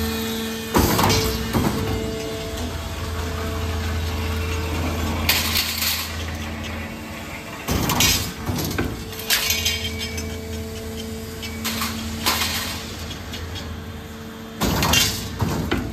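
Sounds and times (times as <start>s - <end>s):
machine humming: 0.0s - 15.9s
metallic clanks and rattles: 4.4s - 13.8s.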